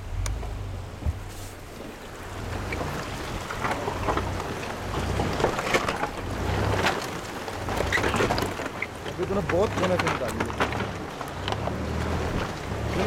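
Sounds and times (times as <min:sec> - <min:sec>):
vehicle engine rumble: 0:00.0 - 0:13.0
tyres crunching on stones: 0:02.5 - 0:13.0.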